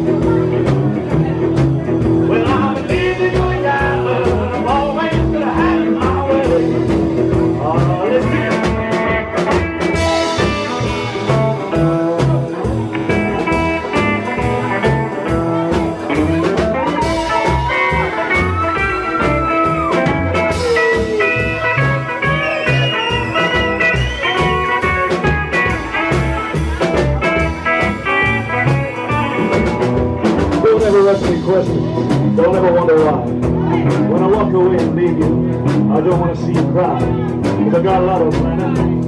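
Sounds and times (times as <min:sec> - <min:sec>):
steady drum beat: 0:00.0 - 0:39.0
upright bass: 0:00.0 - 0:39.0
electric guitar solo with bent notes: 0:08.3 - 0:34.2.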